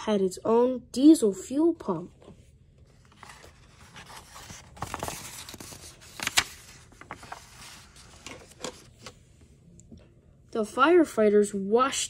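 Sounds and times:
paper page rustling: 0:02.8 - 0:09.2
page flapping: 0:03.0 - 0:09.2.

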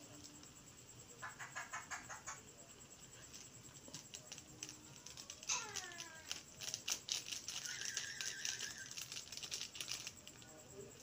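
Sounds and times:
plastic packet crinkling: 0:03.2 - 0:10.5.

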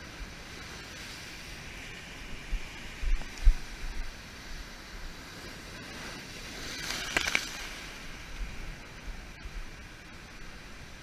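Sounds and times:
surf breaking over rocks: 0:05.4 - 0:09.0
crackling splash: 0:06.5 - 0:08.1.

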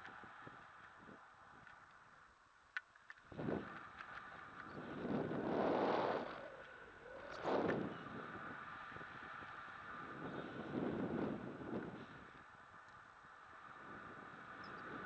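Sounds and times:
wind buffeting microphone: 0:03.3 - 0:15.0.

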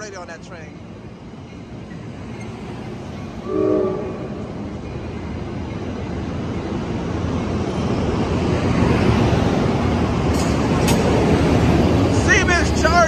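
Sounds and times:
train wheels rumbling on rails: 0:00.0 - 0:13.0
short tone: 0:03.4 - 0:04.6.

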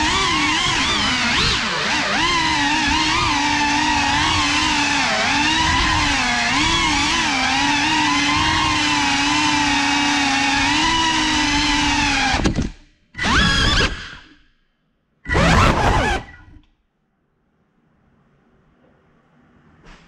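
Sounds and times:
quadcopter motors whining: 0:00.0 - 0:14.4, 0:15.3 - 0:16.6.

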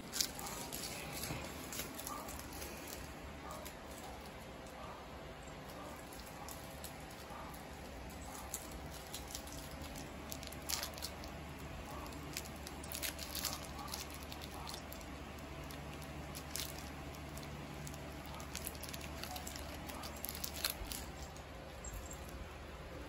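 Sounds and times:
cat claws clicking on tiled floor: 0:05.7 - 0:21.4.

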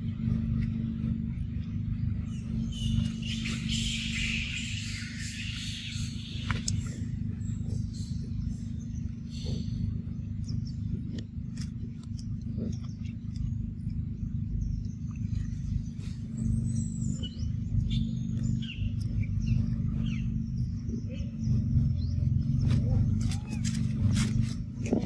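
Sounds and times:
low rumble: 0:00.0 - 0:25.0
faint chirps and clicks: 0:05.5 - 0:16.2, 0:17.1 - 0:20.2.

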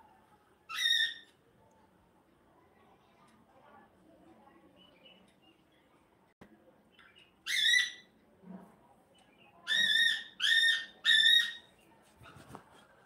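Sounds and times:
parakeet squawking: 0:00.7 - 0:01.2, 0:07.5 - 0:08.1, 0:09.7 - 0:11.7.

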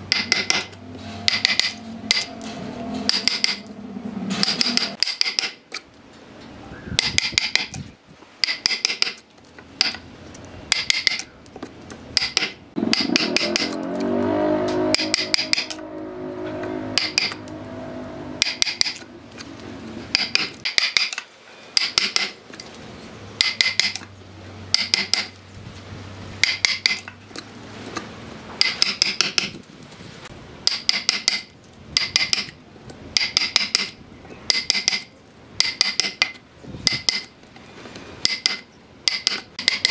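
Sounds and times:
low wavering hum: 0:00.0 - 0:05.0, 0:12.7 - 0:20.3
mallet striking steel chisel: 0:00.1 - 0:02.4, 0:03.1 - 0:03.7, 0:04.4 - 0:05.8, 0:07.0 - 0:07.8, 0:08.4 - 0:09.2, 0:09.8 - 0:10.0, 0:10.7 - 0:11.3, 0:12.2 - 0:14.0, 0:14.9 - 0:15.8, 0:17.0 - 0:17.4, 0:18.4 - 0:19.1, 0:20.1 - 0:21.2, 0:21.8 - 0:22.4, 0:23.4 - 0:24.1, 0:24.7 - 0:25.4, 0:26.4 - 0:27.2, 0:28.6 - 0:29.6, 0:30.6 - 0:37.4, 0:38.2 - 0:39.9.

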